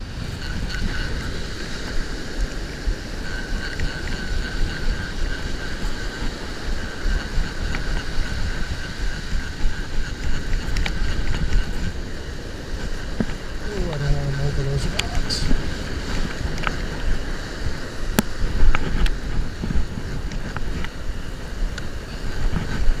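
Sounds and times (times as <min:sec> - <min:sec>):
faint high whine: 0:00.0 - 0:23.0
wind buffeting microphone: 0:00.0 - 0:23.0
surf breaking on beach: 0:10.2 - 0:23.0.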